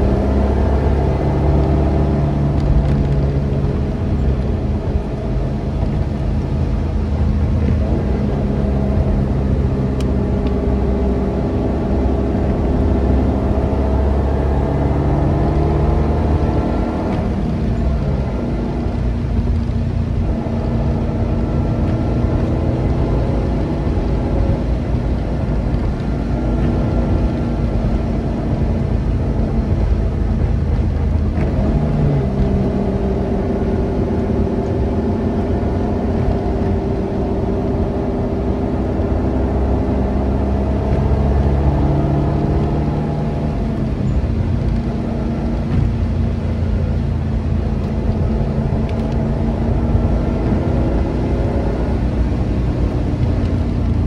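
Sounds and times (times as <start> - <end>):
car engine running: 0.0 - 54.0
road and tyre rumble: 0.0 - 54.0.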